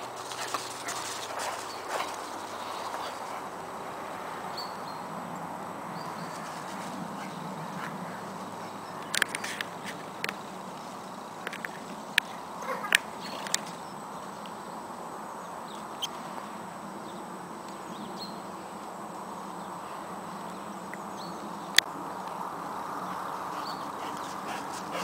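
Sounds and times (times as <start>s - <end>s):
small birds chirping: 0.0s - 3.7s, 23.0s - 25.0s
outdoor background noise: 0.0s - 25.0s.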